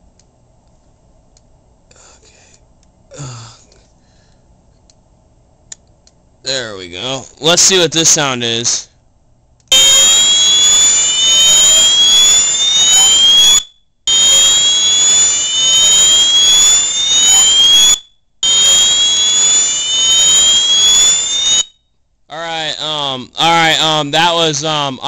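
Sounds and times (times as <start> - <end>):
fire alarm horn whooping: 9.7 - 21.8.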